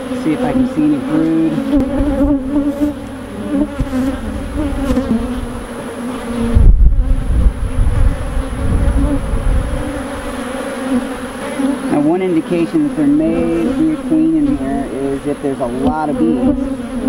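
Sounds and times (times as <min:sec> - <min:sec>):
honey bees buzzing: 0:00.0 - 0:17.0
low rumble: 0:02.0 - 0:05.9.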